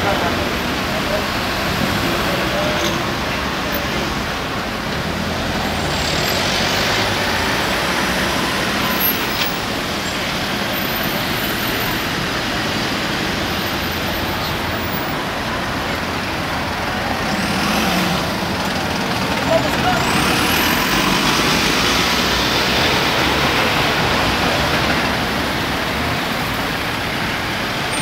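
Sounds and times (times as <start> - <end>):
road traffic driving past: 0.0 - 28.0.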